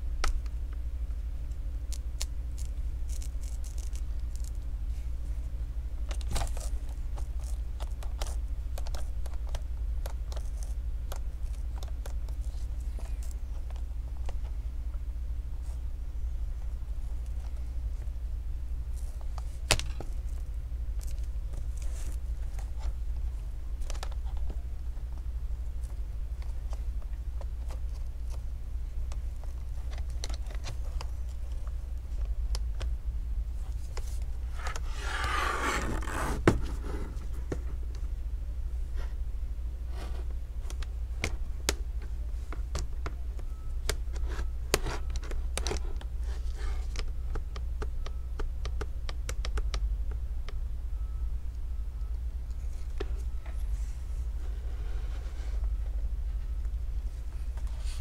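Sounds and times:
steady low hum: 0.0 - 58.0
scraping rub: 33.8 - 37.4, 53.6 - 55.8.

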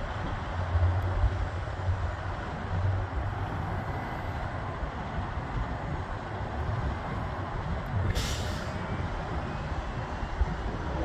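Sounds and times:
wind buffeting microphone: 0.0 - 11.0
short hiss: 8.1 - 8.7.

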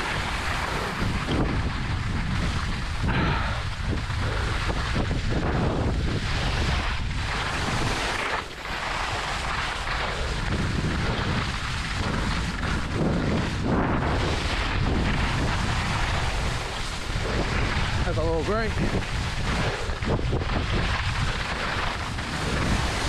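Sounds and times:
skis scraping on snow: 0.0 - 23.0
wind rushing over microphone: 0.0 - 23.0.

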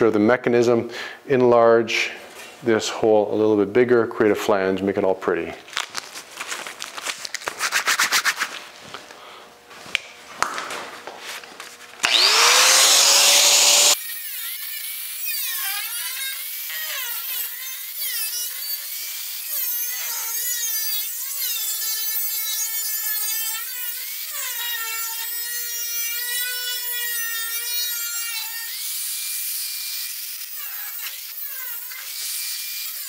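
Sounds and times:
angle grinder cutting steel: 12.0 - 33.0.

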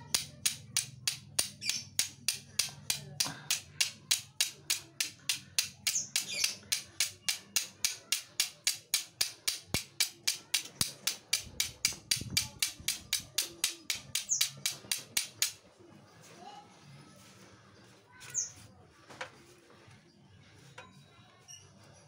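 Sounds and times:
flint and steel strikes: 0.1 - 15.6.

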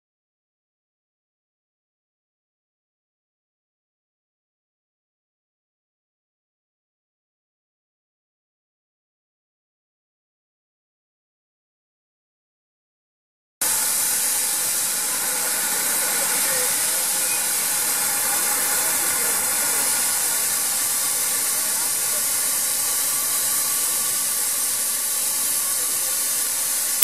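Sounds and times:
steam locomotive hissing: 13.6 - 27.0.

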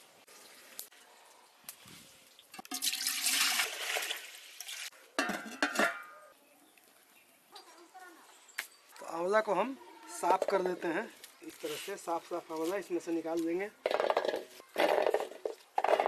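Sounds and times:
water poured into metal pot: 2.2 - 5.9
metal pot clanking: 2.5 - 3.4, 5.2 - 6.3.

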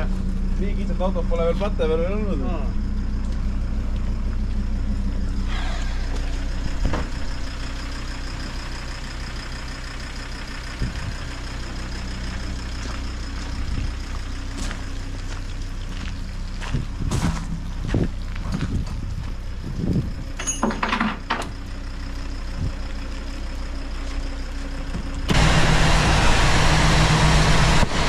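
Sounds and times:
vehicle engine idling: 0.0 - 28.0
short falling squeal: 5.3 - 7.5.

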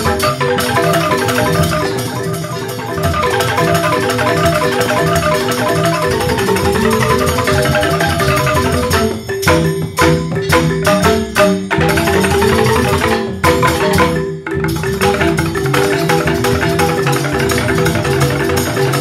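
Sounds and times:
bamboo xylophone gamelan: 0.0 - 19.0.

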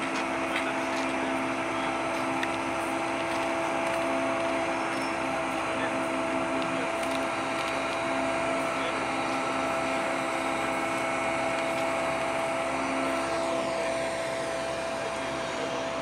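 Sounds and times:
crane diesel engines droning: 0.0 - 16.0
hydraulic pump whine: 0.0 - 16.0.

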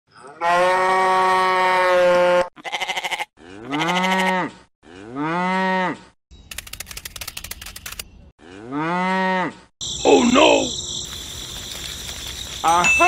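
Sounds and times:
quavering bleat: 0.2 - 6.0
cow mooing: 0.2 - 6.1, 8.4 - 9.7.

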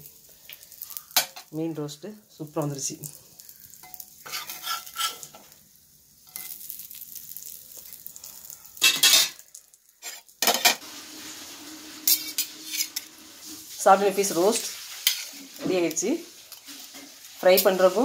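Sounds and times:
oil sizzling: 0.0 - 18.0
metal spatula scraping pan: 3.8 - 5.5, 8.8 - 9.4, 10.0 - 18.0.

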